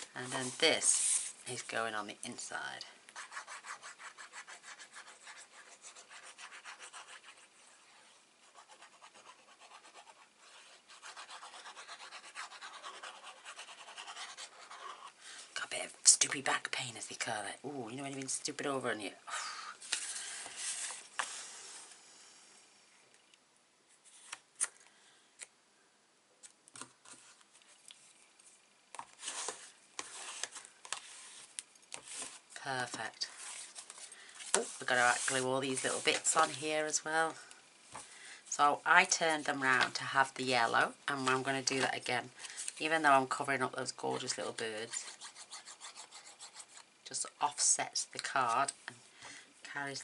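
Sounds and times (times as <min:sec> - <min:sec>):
scratchy paper rustle: 0:00.2 - 0:01.4, 0:26.8 - 0:36.6.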